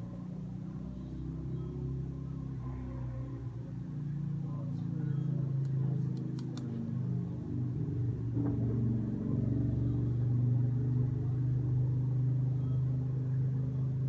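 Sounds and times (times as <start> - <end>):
constant hum: 0.0 - 14.0
machine rumbling: 6.8 - 14.0.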